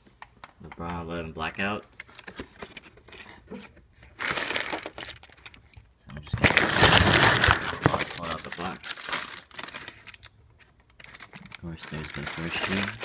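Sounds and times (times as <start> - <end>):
cardboard box and tissue paper rustling: 6.4 - 10.2, 11.0 - 13.0.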